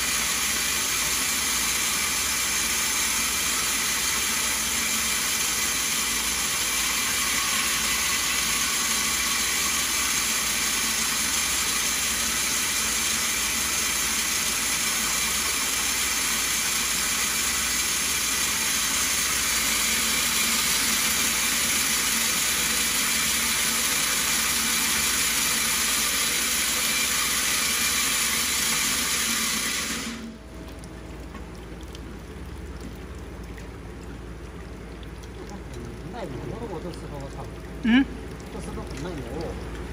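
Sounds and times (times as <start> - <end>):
stone bead milling machine churning: 0.0 - 30.4.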